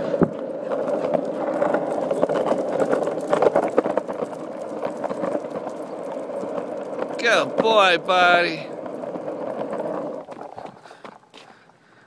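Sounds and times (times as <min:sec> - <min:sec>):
skateboard clicks and knocks: 0:00.0 - 0:11.8
skateboard wheels rolling on asphalt: 0:00.0 - 0:12.0.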